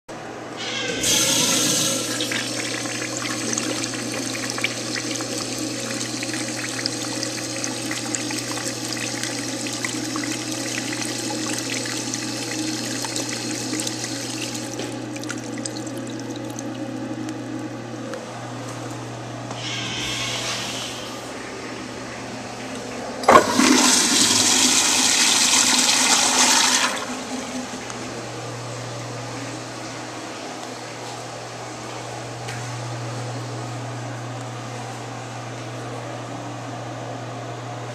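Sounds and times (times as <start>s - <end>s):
steady low hum: 0.2s - 24.8s
urinal flushing: 0.5s - 18.1s, 19.4s - 30.1s.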